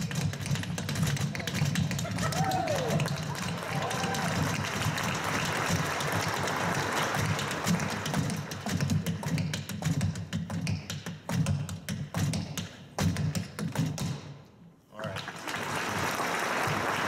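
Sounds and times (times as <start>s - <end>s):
tap shoes on wooden board: 0.0s - 5.1s, 7.2s - 14.2s.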